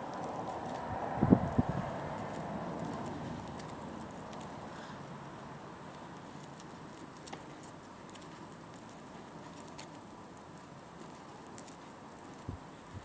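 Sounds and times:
steady low hiss: 0:00.0 - 0:13.0
small clicks of rope handling: 0:05.9 - 0:12.7.

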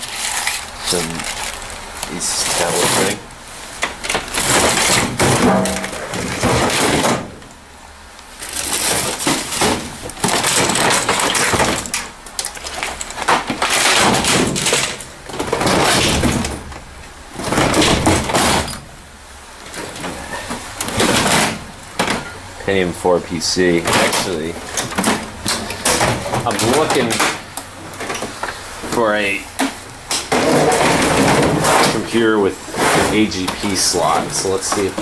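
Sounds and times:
plastic bags crinkling: 0:00.0 - 0:07.0, 0:08.3 - 0:16.3
electronics and cables shifting: 0:00.0 - 0:07.6, 0:08.4 - 0:18.9, 0:19.6 - 0:35.0.

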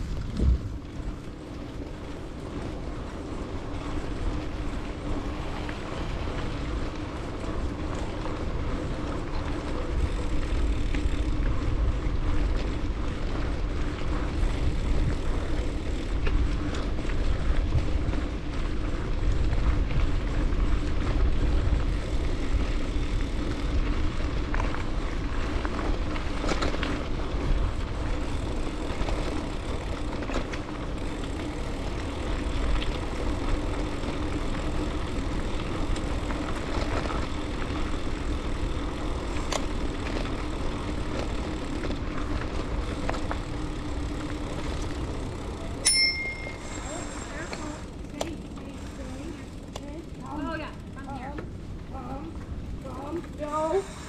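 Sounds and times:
wind buffeting microphone: 0:00.0 - 0:43.9
bike tyres rolling on dirt: 0:00.0 - 0:54.0
handlebar bell ring: 0:45.8 - 0:46.9.

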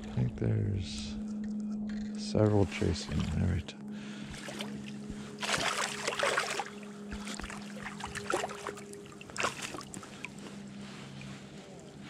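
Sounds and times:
faint steady hum: 0:00.0 - 0:12.0
fish splashing in water: 0:04.3 - 0:10.4
water dripping: 0:04.4 - 0:10.4.

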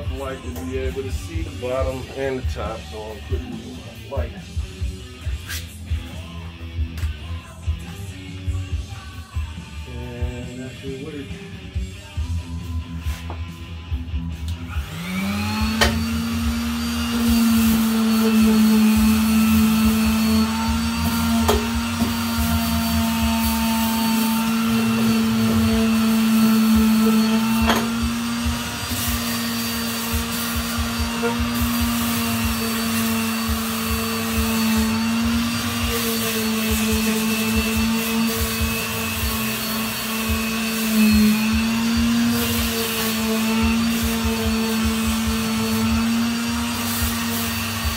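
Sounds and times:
electric sander whining: 0:14.5 - 0:47.9.

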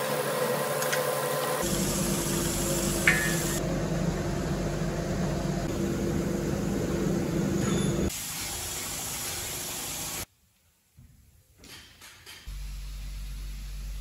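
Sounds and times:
mechanical hiss and hum: 0:00.0 - 0:10.3, 0:12.5 - 0:14.0.

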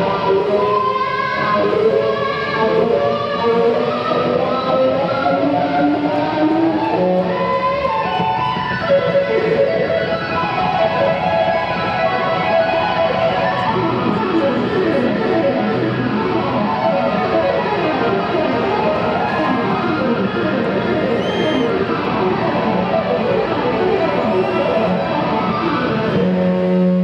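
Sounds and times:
band playing: 0:00.0 - 0:27.0
electric guitar solo: 0:00.0 - 0:27.0.

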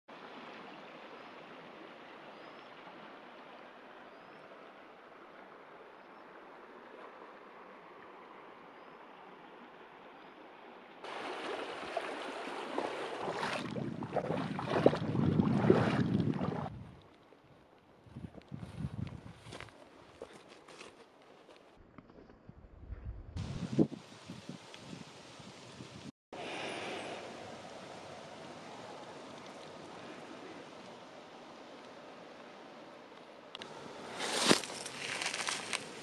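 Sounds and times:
river water running over stones: 0:00.1 - 0:17.2, 0:26.4 - 0:36.0
water splashing: 0:11.0 - 0:16.8.

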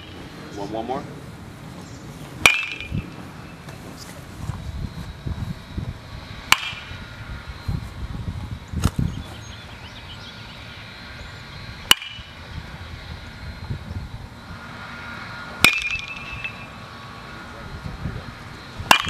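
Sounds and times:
baseball bat cracking ball: 0:02.4 - 0:03.1, 0:06.4 - 0:07.0, 0:11.8 - 0:12.4, 0:15.5 - 0:16.8.

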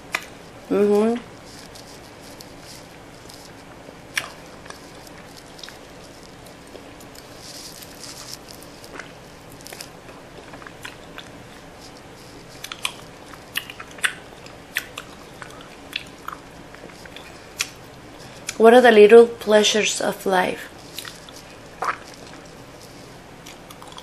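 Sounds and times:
mouth chewing clicks and smacks: 0:04.1 - 0:07.2, 0:08.8 - 0:12.0, 0:12.6 - 0:18.6, 0:20.9 - 0:22.5, 0:23.4 - 0:24.0.

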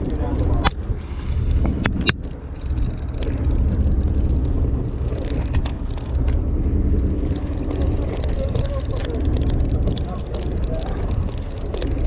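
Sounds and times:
boat engine rumble: 0:00.0 - 0:12.0
fishing reel knocks: 0:01.8 - 0:12.0.

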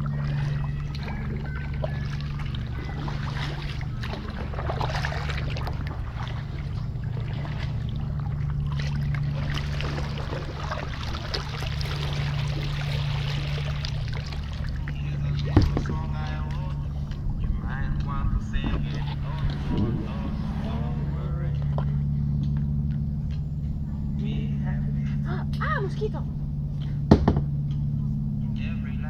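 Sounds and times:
water dripping: 0:00.0 - 0:20.2
kayak paddle splashing: 0:00.0 - 0:26.1
steady low hum: 0:00.0 - 0:29.0.

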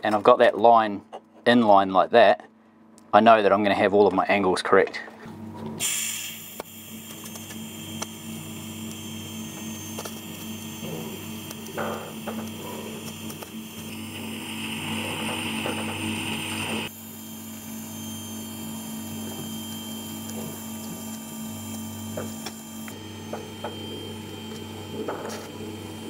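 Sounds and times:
welder electrical hum: 0:00.0 - 0:26.0
welding arc hiss: 0:05.8 - 0:17.8.

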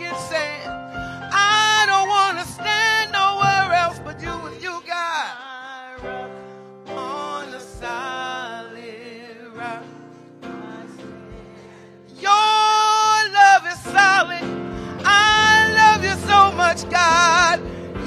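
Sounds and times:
held keyboard chords: 0:00.0 - 0:18.0
woman singing gospel: 0:00.0 - 0:18.0.

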